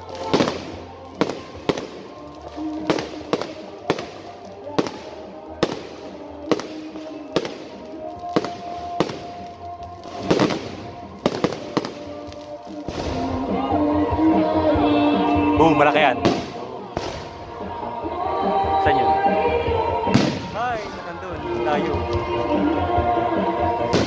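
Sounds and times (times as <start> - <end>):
fireworks bangs and crackles: 0.0 - 17.5, 20.0 - 22.6, 23.7 - 24.0
music: 0.0 - 24.0.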